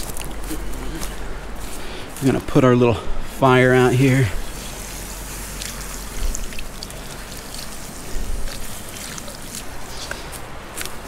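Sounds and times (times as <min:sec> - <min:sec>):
water splashing on hot ashes: 0:03.9 - 0:11.0.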